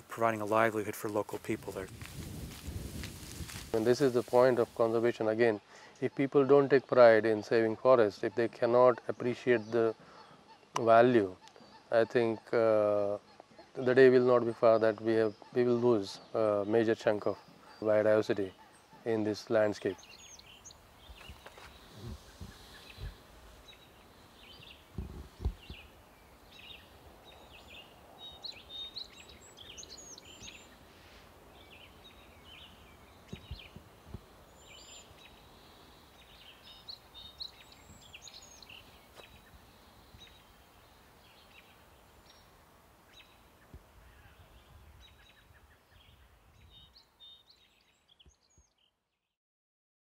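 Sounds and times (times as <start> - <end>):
small birds chirping and trilling: 0.0 - 49.0
low thumps: 24.9 - 25.9.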